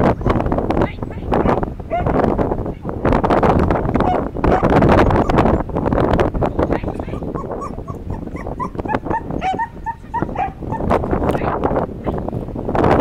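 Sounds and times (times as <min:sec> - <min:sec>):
wind noise on microphone: 0:00.0 - 0:13.0
dog whining and yipping: 0:04.0 - 0:05.6, 0:06.9 - 0:10.9.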